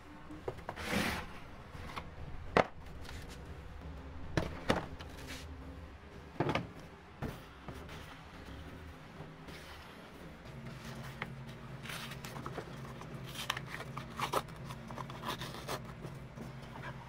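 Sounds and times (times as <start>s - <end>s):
steady low hum: 0.0s - 17.0s
paperboard crackling and tearing: 11.8s - 16.0s.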